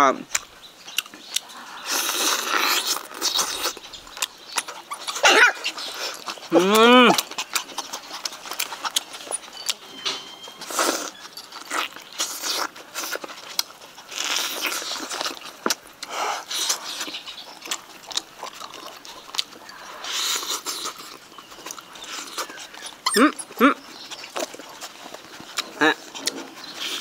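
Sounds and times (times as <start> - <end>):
lip smacks: 0.3 - 9.8, 10.6 - 27.0
wet chewing: 0.3 - 27.0
sucking slurps: 1.4 - 4.0.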